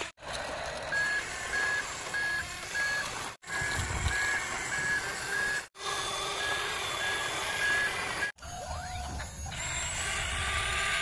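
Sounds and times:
reversing beeper beeping: 0.9s - 5.7s, 6.3s - 9.5s.

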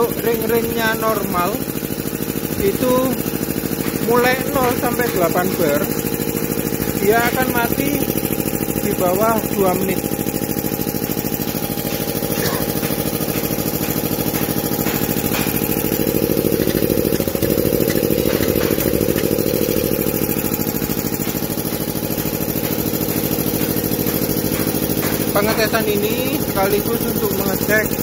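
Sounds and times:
air compressor running: 0.0s - 28.0s.

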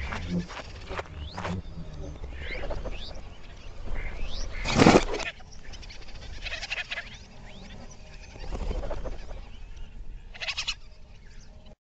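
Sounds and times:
reversed small animal chatter: 0.0s - 11.6s
reversed bird chirps: 0.0s - 11.7s.

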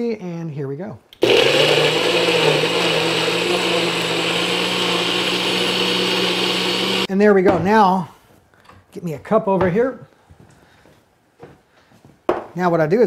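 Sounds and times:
person speaking: 0.8s - 8.2s
blender motor running: 1.2s - 7.1s.

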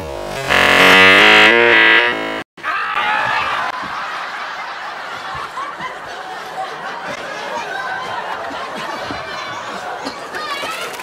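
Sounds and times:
studio audience laughing: 3.4s - 10.4s.

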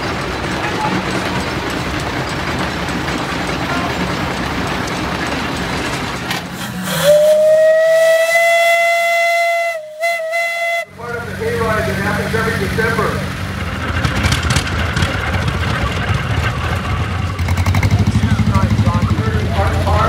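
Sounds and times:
steam machinery rumble and hiss: 0.0s - 20.0s
steam whistle blowing: 6.6s - 11.0s.

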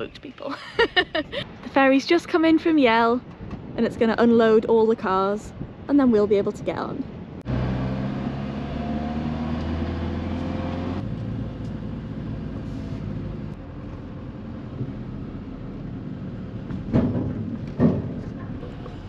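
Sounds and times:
loud clunks: 16.7s - 18.9s.

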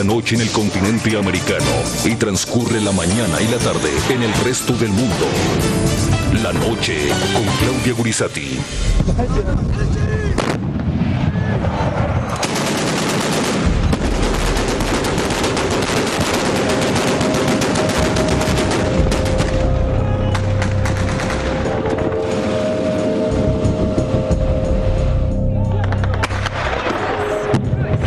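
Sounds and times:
music: 0.0s - 9.7s, 15.6s - 28.0s
rapid automatic gunfire: 12.4s - 19.6s
steady tones: 13.6s - 27.6s.

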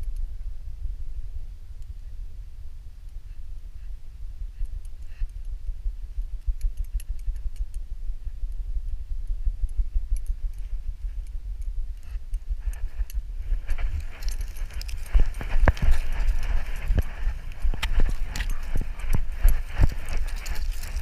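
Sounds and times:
rustle of pine needles: 13.5s - 21.0s
metal tags clinking: 13.6s - 21.0s.

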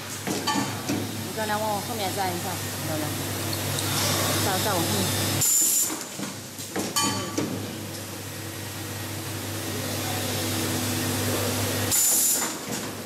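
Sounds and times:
machine humming: 7.8s - 12.4s.

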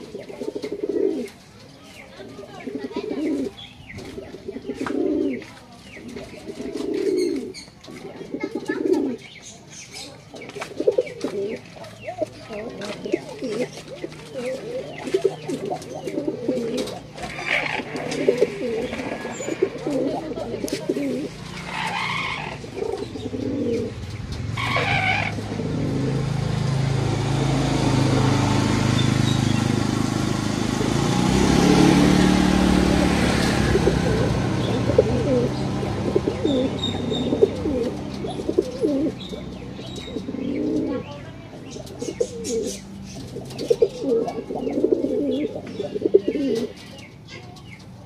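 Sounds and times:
pigeon cooing: 0.0s - 1.4s, 2.5s - 9.3s, 10.0s - 26.6s, 30.8s - 47.5s
vehicle engine droning: 10.2s - 48.0s.

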